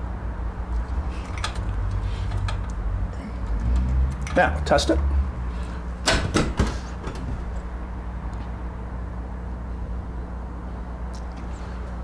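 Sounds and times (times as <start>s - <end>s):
metal door knocks and clanks: 6.0s - 7.5s.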